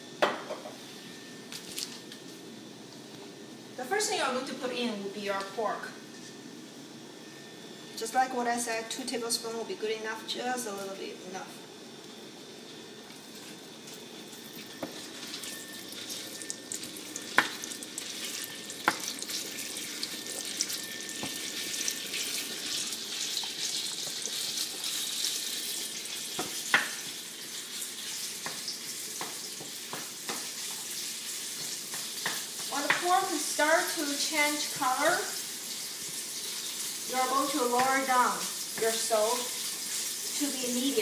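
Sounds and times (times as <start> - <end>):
meat sizzling in oil: 14.2 - 41.0.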